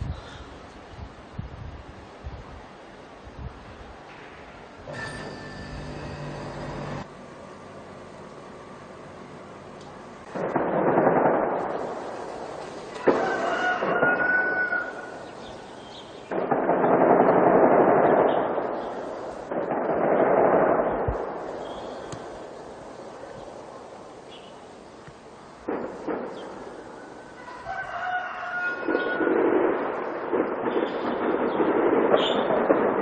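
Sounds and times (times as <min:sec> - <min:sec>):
sharp cracks: 0:09.8 - 0:27.8, 0:28.6 - 0:33.0
loud echoing bangs: 0:10.3 - 0:24.1, 0:25.6 - 0:33.0
rooster crowing: 0:13.0 - 0:15.3, 0:27.1 - 0:29.4.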